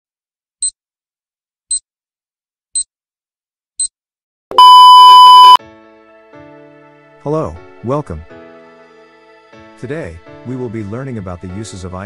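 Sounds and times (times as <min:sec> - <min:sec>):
alarm-like ring: 0:04.5 - 0:05.6.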